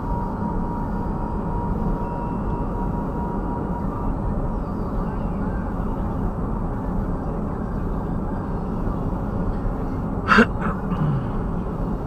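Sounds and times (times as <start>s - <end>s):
car cabin road noise: 8.8s - 12.0s.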